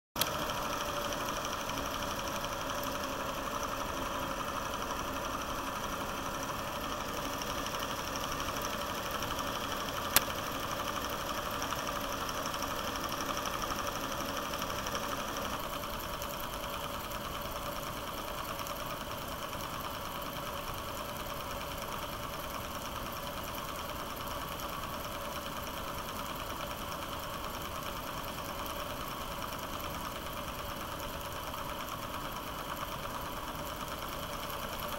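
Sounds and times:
film projector clatter: 0.2s - 34.9s
sharp click: 10.0s - 10.4s.

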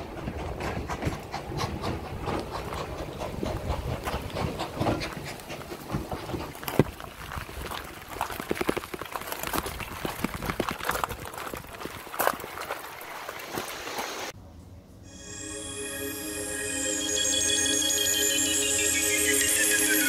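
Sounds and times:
raindrops tapping on microphone: 5.9s - 14.1s
rain: 6.5s - 14.3s.

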